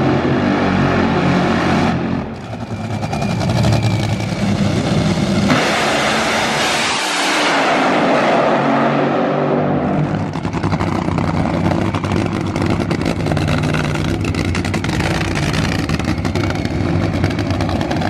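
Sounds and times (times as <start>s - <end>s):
dragster engines running: 2.2s - 5.5s, 10.1s - 18.0s.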